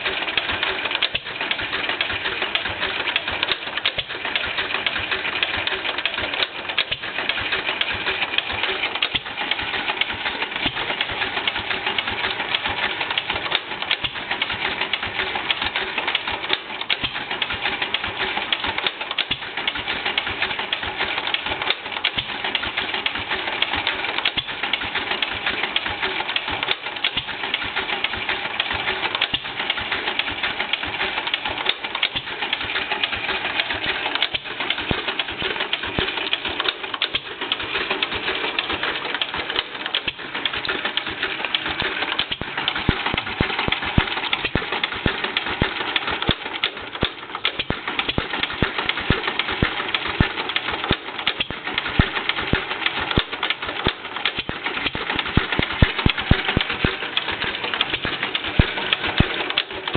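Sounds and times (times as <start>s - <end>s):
engine ticking and clattering: 0.0s - 59.9s.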